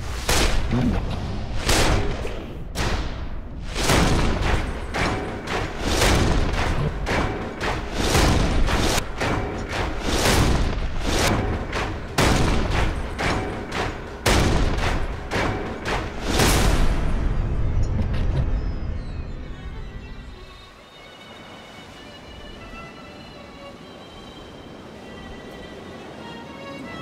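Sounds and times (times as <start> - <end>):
dramatic instrumental music: 0.0 - 27.0
booming drum hits: 2.8 - 17.6.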